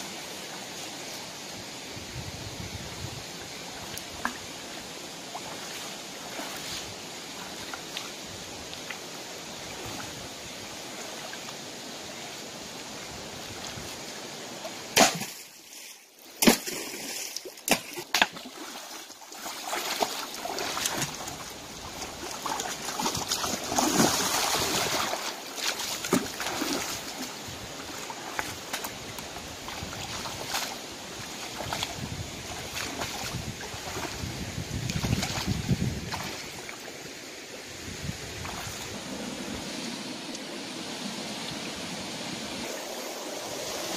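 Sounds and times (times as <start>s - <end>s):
stream running over rocks: 0.0s - 43.9s
water splashing from wading: 3.9s - 10.2s, 14.6s - 37.0s.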